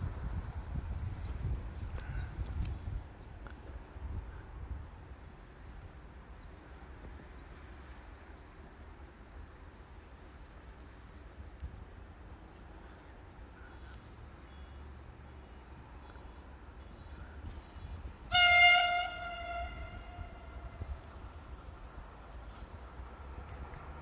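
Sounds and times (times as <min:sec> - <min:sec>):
wind rumble on microphone: 0:00.0 - 0:06.1, 0:17.0 - 0:24.0.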